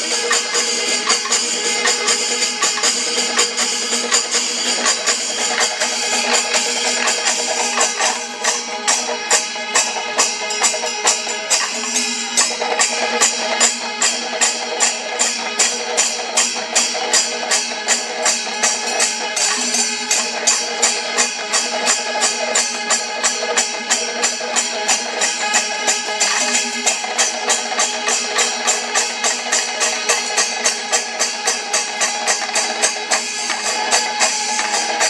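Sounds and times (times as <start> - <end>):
drums beating: 0.0 - 15.3, 25.1 - 35.0
continuous held tones: 0.0 - 35.0
hand cymbals clashing: 0.0 - 35.0.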